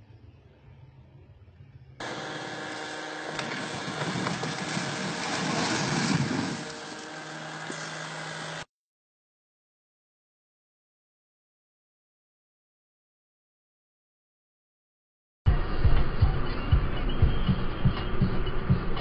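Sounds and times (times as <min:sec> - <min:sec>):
engine running loudly with rushing: 0:02.0 - 0:08.7.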